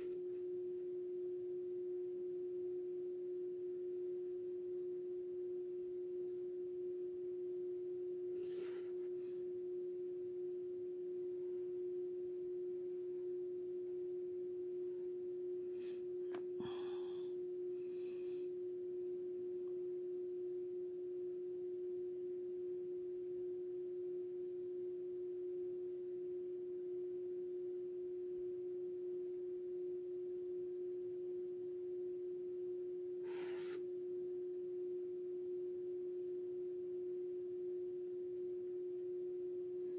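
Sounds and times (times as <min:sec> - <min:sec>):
steady single-pitched hum: 0:00.0 - 0:39.9.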